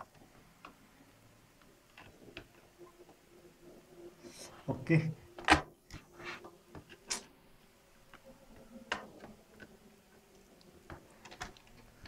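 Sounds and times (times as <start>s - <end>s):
faint clicks and taps: 1.6s - 3.2s, 8.0s - 12.0s.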